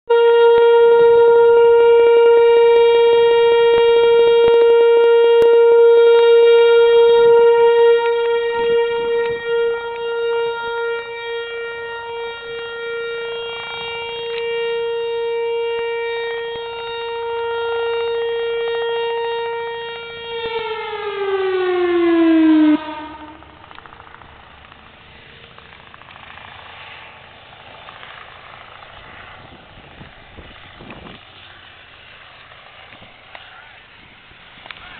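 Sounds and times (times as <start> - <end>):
warning siren steady tone: 0.1 - 27.4.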